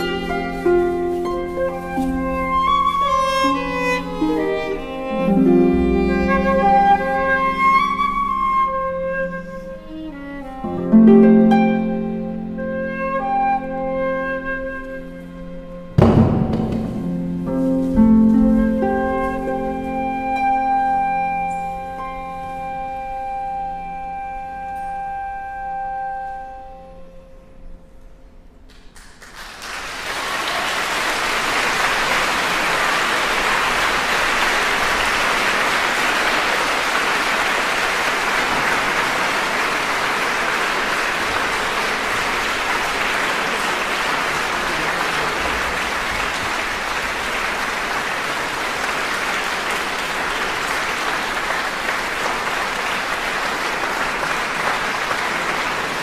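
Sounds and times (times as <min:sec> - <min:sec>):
flute viola and harp note: 0:00.0 - 0:16.2, 0:17.0 - 0:27.9
audience applause: 0:28.7 - 0:56.0.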